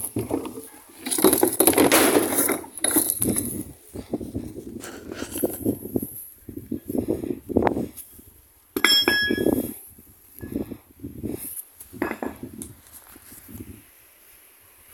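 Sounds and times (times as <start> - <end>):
sharp metallic clink: 8.8 - 9.6.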